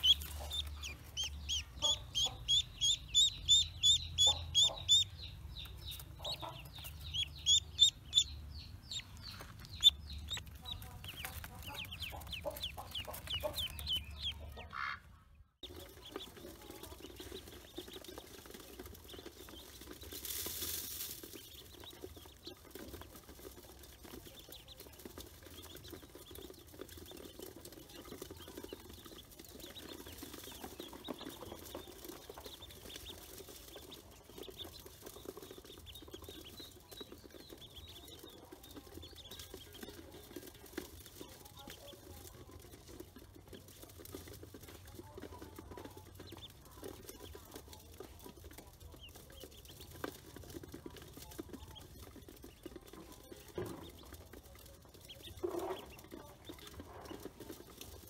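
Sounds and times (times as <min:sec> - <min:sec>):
duckling peeping loudly: 0:00.0 - 0:18.2
ducklings peeping faintly: 0:00.0 - 0:58.0.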